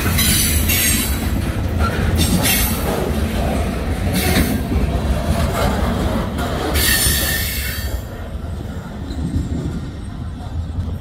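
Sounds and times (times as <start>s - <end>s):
train wheels squealing: 0.0s - 1.2s, 1.8s - 2.9s, 4.1s - 4.7s, 6.7s - 8.2s, 8.8s - 10.2s
freight train rumbling on rails: 0.0s - 11.0s.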